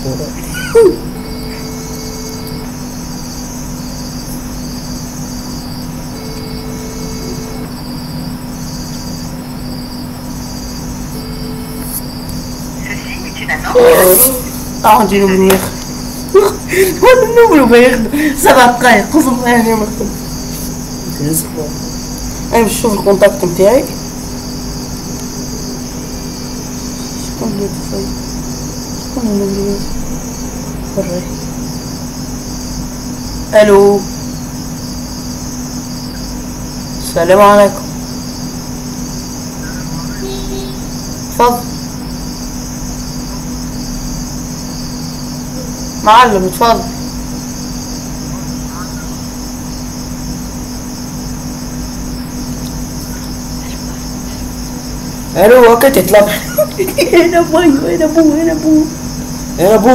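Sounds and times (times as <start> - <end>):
cricket trilling: 0.0 - 59.9
high-pitched insect-like chirring: 0.0 - 59.9
low hum and hiss: 0.0 - 59.9
quiet voice: 12.8 - 14.7.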